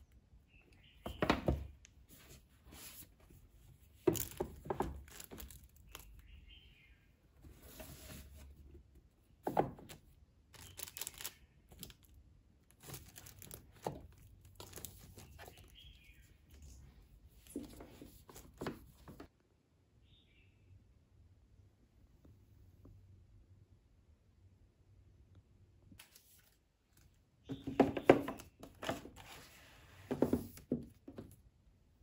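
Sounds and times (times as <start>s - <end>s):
books sliding and rubbing: 7.4s - 8.6s, 28.8s - 30.6s
books knocking on a shelf: 27.5s - 29.0s, 30.1s - 31.3s.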